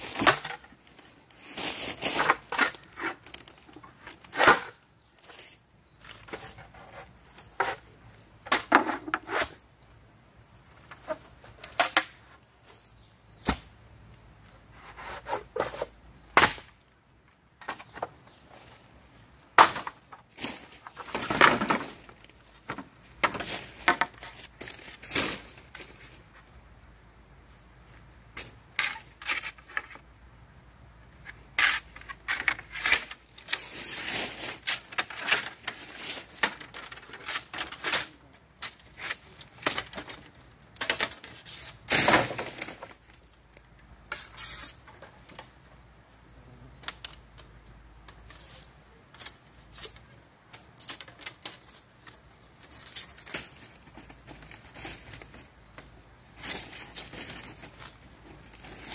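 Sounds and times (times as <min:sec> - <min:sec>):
bamboo knocks and cracks: 0:00.0 - 0:01.0, 0:02.0 - 0:05.4, 0:08.4 - 0:09.6, 0:10.9 - 0:12.3, 0:13.4 - 0:13.8, 0:15.1 - 0:16.8, 0:17.6 - 0:18.2, 0:19.5 - 0:25.9, 0:34.5 - 0:43.2.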